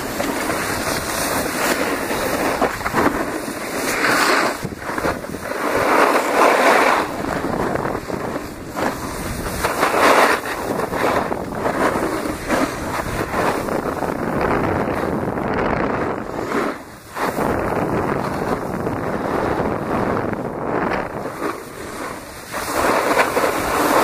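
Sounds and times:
edges scraping on snow: 0.0s - 24.0s
wind rushing over microphone: 0.0s - 24.0s.

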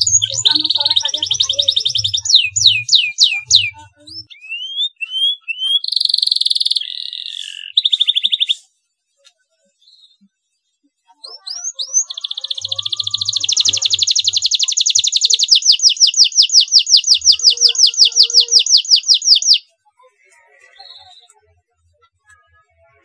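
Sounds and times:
canary singing trills: 0.0s - 8.8s, 11.2s - 19.8s.

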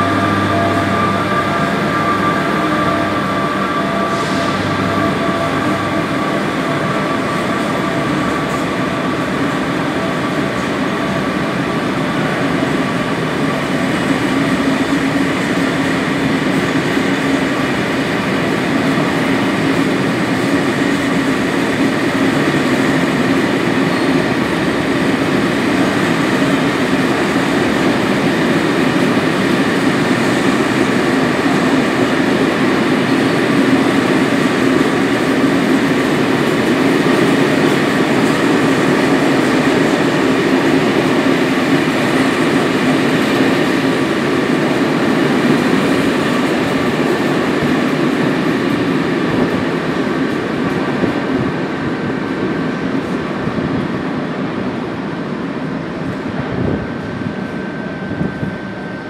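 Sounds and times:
thin high whine: 0.0s - 9.4s
train wheels rumbling on rails: 0.0s - 59.0s.

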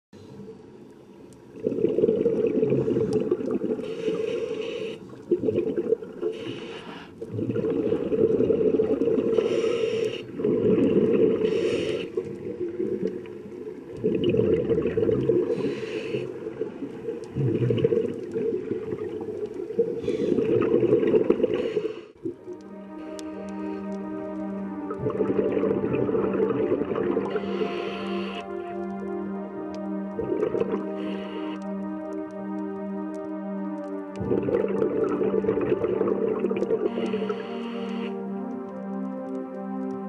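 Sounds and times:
exhaled air bubbling: 1.3s - 29.1s, 29.9s - 32.4s, 34.1s - 38.2s
regulator inhale hiss: 3.8s - 5.2s, 6.3s - 7.2s, 9.3s - 10.4s, 11.4s - 12.2s, 15.4s - 16.5s, 20.0s - 20.5s, 21.4s - 22.2s, 27.3s - 28.5s, 30.8s - 31.6s, 36.9s - 38.2s.

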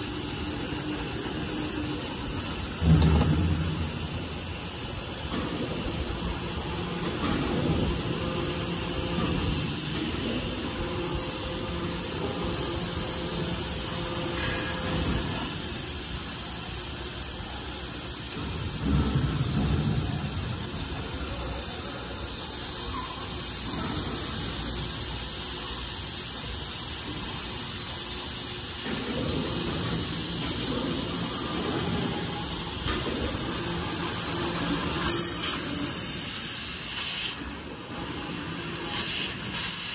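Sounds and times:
cutting torch gas hiss: 23.5s - 39.9s.

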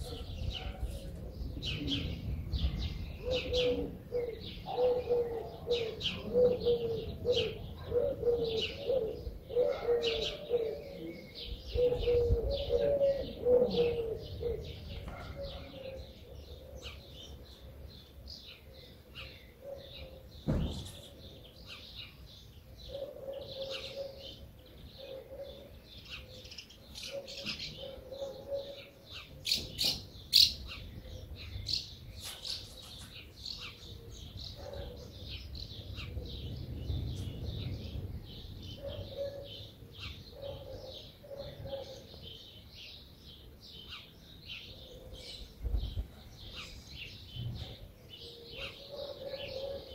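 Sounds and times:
small birds chirping: 0.0s - 49.9s
low cooing call: 3.2s - 17.0s
dull thump: 20.4s - 21.0s.

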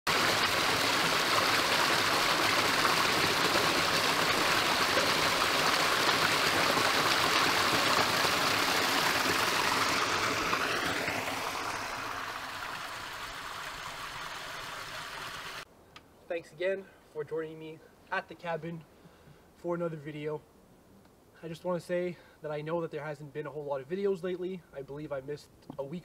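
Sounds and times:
brook splashing and gurgling: 0.1s - 15.6s.

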